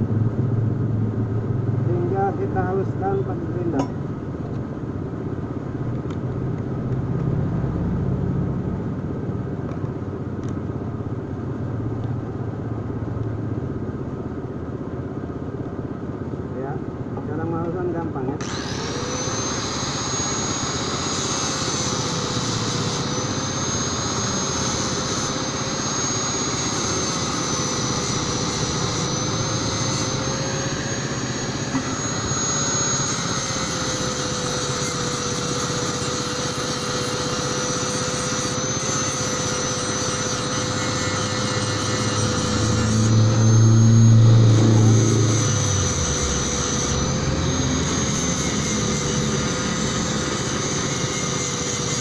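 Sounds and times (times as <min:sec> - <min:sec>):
angle grinder grinding metal: 0:17.3 - 0:52.0.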